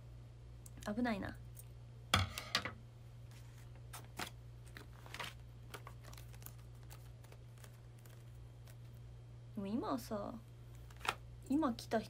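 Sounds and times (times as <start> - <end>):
steady low hum: 0.0 - 12.0
crinkling by hand: 3.2 - 9.1, 10.4 - 11.2.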